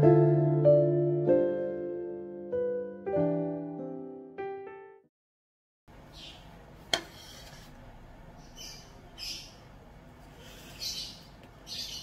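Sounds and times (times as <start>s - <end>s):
piano chords ringing: 0.0s - 5.1s.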